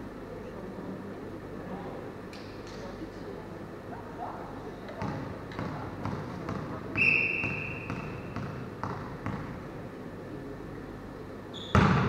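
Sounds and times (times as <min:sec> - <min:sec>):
volleyball bouncing on floor: 0:05.0 - 0:09.6, 0:11.7 - 0:12.0
referee's whistle: 0:07.0 - 0:07.9.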